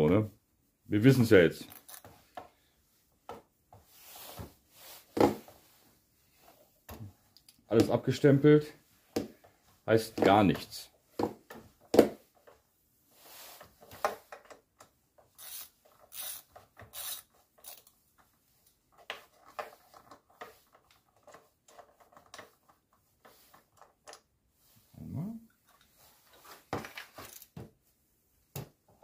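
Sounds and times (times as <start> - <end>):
plastic parts clicking and scraping: 1.6 - 2.5, 13.6 - 24.3, 25.6 - 27.6.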